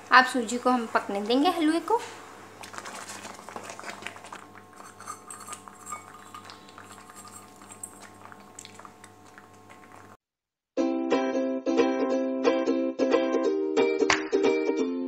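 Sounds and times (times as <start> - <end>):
low steady hum: 0.0 - 10.2
thick mixture bubbling with clicks: 2.5 - 10.2
spoon scraping metal pan: 4.8 - 8.0.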